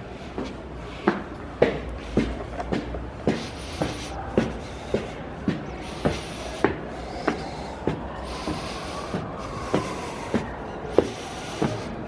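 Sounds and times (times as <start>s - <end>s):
footsteps on stone stairs: 0.0s - 12.0s.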